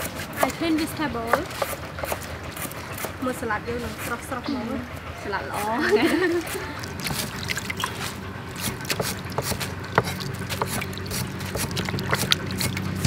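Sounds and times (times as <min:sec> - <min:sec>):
steady low hum: 0:00.0 - 0:13.0
water dripping: 0:06.4 - 0:13.0
lettuce tapping in metal colander: 0:06.9 - 0:13.0.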